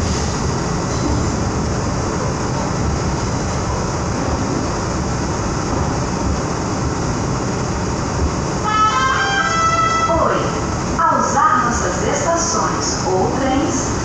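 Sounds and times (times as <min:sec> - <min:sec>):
train wheels on rails: 0:00.0 - 0:09.1.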